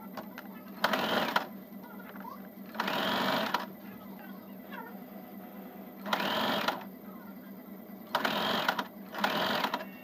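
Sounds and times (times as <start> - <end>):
sewing machine stitching: 0.8 - 1.5, 2.7 - 3.7, 6.0 - 6.9, 8.1 - 9.9.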